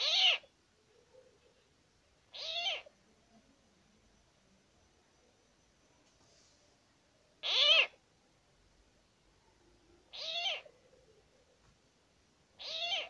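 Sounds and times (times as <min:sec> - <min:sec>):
bird giving harsh calls: 0:00.0 - 0:00.4, 0:02.4 - 0:02.9, 0:07.4 - 0:08.0, 0:10.2 - 0:10.7, 0:12.6 - 0:13.0.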